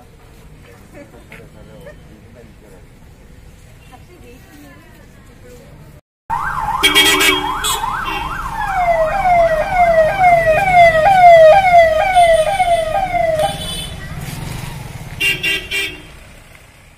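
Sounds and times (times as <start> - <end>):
vehicle siren: 6.3 - 13.7
car horn blast: 6.8 - 8.4, 12.0 - 14.0.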